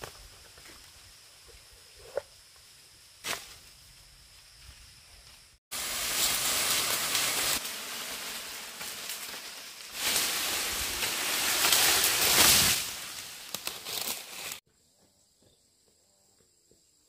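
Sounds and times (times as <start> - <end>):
dry leaves and branches rustling: 2.6 - 14.6.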